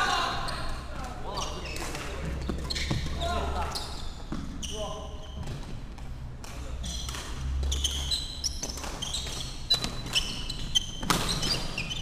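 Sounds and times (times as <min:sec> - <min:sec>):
shoes squeaking on wooden floor: 0:00.4 - 0:05.8, 0:06.8 - 0:12.0
racket hitting shuttlecock: 0:06.0 - 0:11.8.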